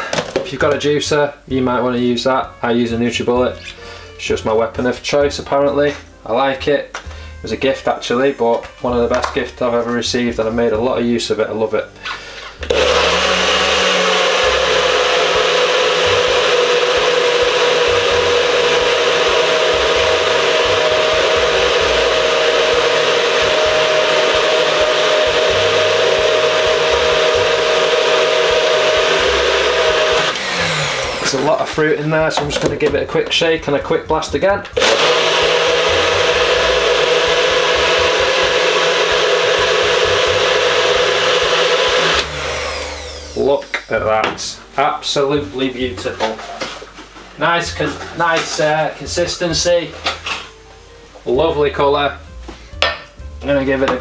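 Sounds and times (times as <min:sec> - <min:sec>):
blender motor whining: 0:12.6 - 0:31.7, 0:34.8 - 0:43.9.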